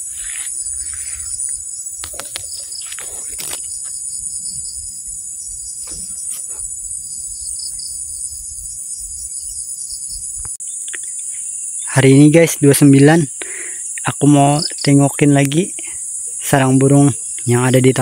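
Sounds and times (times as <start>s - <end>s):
crickets chirping: 0.0s - 18.0s
knocks and rustles: 5.7s - 6.8s.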